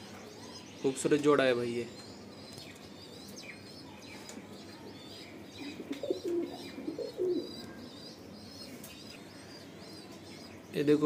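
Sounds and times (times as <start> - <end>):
small birds chirping: 0.0 - 11.0
pigeons cooing: 1.9 - 11.0.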